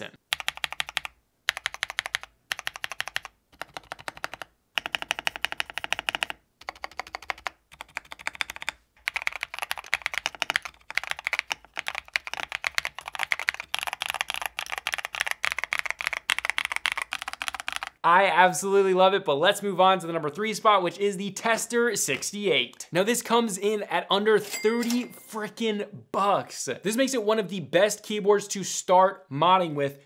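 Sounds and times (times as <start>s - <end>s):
mechanical keyboard typing: 0.3s - 18.0s.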